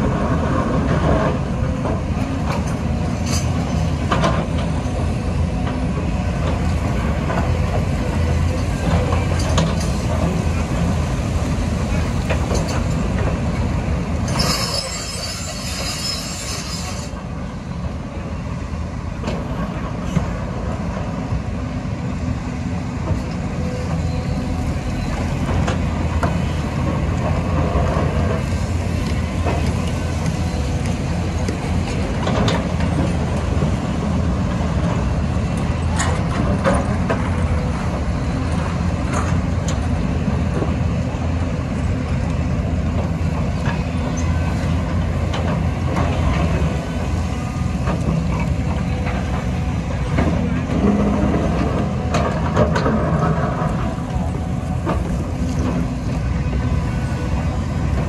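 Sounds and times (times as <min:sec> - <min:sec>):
excavator diesel engines under load: 0:00.0 - 0:58.0.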